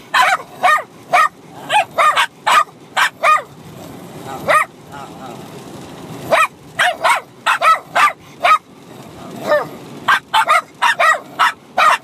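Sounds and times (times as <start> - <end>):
small dogs yapping: 0.0 - 3.6, 4.4 - 4.7, 6.2 - 8.7, 9.3 - 12.0.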